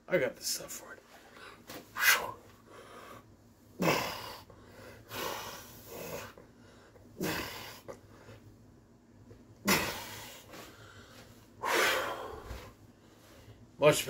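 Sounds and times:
man breathing hard: 0:01.2 - 0:08.5, 0:09.6 - 0:13.8
forceful exhales: 0:11.6 - 0:12.7.

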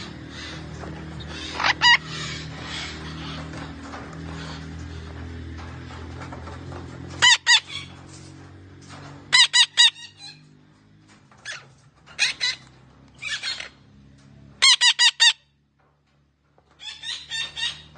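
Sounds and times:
parrot giving harsh calls: 0:01.3 - 0:03.0, 0:14.6 - 0:15.4.

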